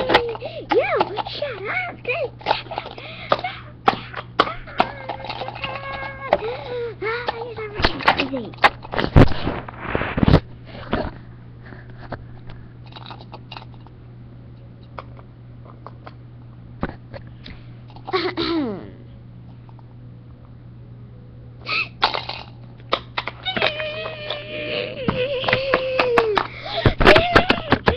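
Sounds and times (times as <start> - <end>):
toys knocking and clicking: 0.0 - 1.7, 2.4 - 6.6, 7.2 - 9.1, 22.1 - 27.9
low electrical hum: 0.0 - 27.9.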